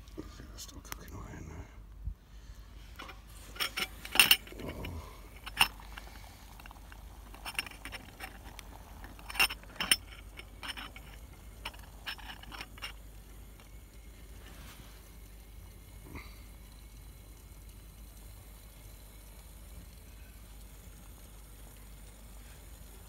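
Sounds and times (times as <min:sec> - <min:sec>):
metal cooking cup clinking: 0:03.0 - 0:05.9, 0:06.5 - 0:13.0.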